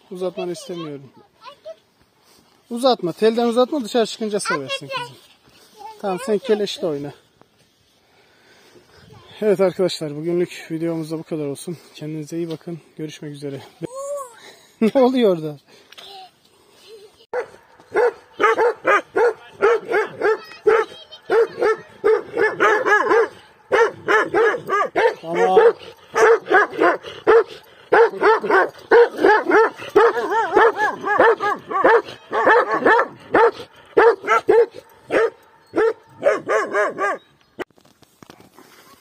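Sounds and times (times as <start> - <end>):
dog barking rapidly: 17.4 - 37.2.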